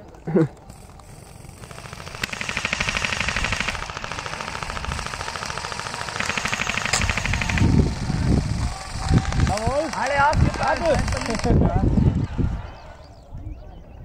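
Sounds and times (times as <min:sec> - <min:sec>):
airsoft guns firing full auto: 0:00.5 - 0:12.4.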